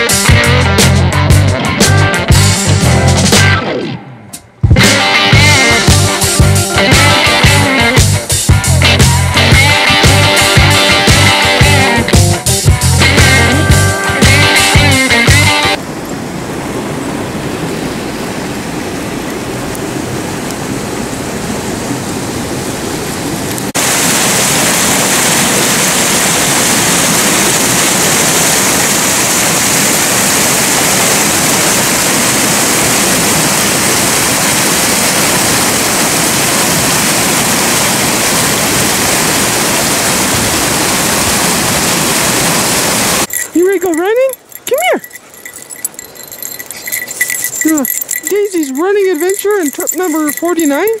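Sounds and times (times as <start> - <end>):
rushing water: 4.8 - 51.0
whitewater pouring into pool: 23.7 - 44.2.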